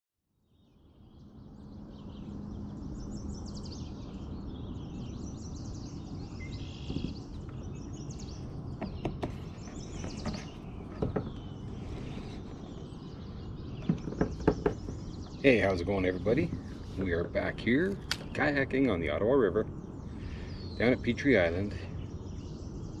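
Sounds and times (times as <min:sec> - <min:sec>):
birds chirping and singing: 0:00.5 - 0:23.0
low outdoor rumble: 0:00.6 - 0:23.0
sharp knocks: 0:08.8 - 0:11.5, 0:13.8 - 0:15.1.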